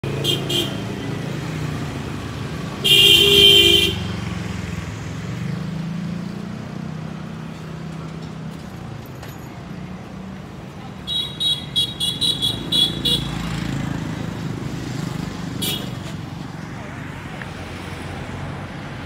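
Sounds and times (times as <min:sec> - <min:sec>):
traffic engine drone: 0:00.0 - 0:19.0
loud vehicle horn blast: 0:00.1 - 0:00.9, 0:02.8 - 0:04.1, 0:11.1 - 0:13.4, 0:15.6 - 0:16.0.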